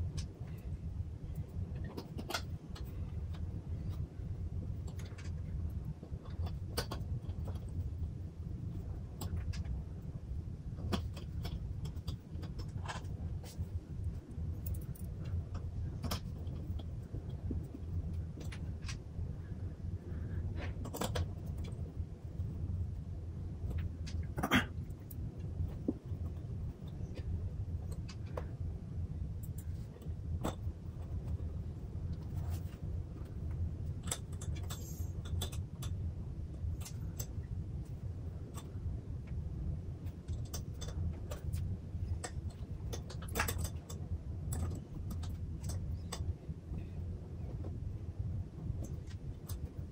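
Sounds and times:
steady low hum: 0.0 - 49.9
small metallic clicks: 32.1 - 36.0, 40.0 - 46.9.

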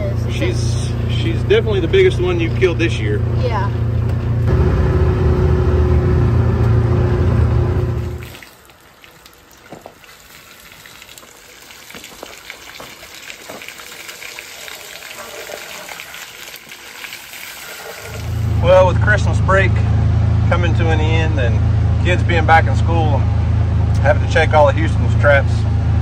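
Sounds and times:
vehicle engine humming: 0.0 - 8.3, 17.8 - 26.0.

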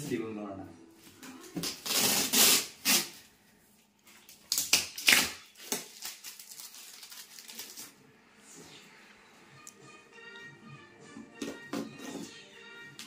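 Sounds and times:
plastic wrap crinkling and ripping: 1.6 - 3.2, 4.0 - 8.0.

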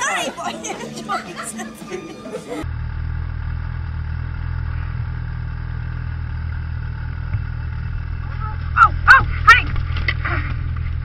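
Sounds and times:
voices: 0.0 - 2.6, 8.2 - 10.5
snowmobile engine idling: 2.6 - 11.0.

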